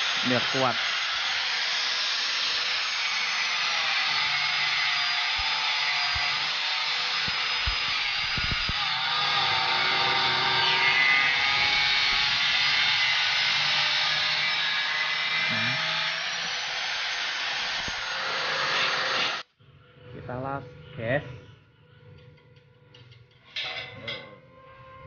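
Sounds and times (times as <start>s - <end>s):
angle grinder on steel: 0.0s - 19.4s.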